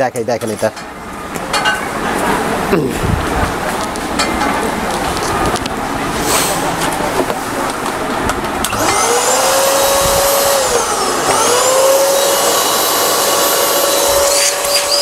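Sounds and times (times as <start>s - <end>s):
vacuum cleaner motor whine: 8.6s - 15.0s.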